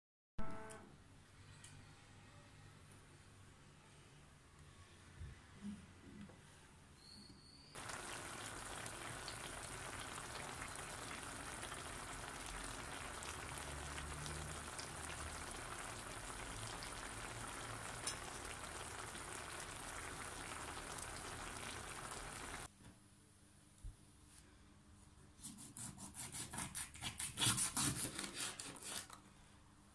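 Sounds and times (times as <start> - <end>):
food sizzling in a pan: 7.8 - 22.7.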